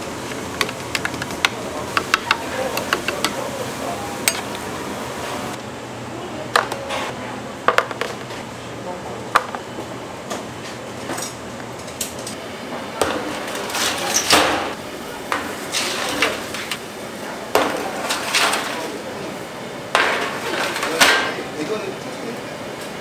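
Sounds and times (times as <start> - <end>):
utensils knocking and clinking: 0.3 - 3.5, 19.9 - 21.4.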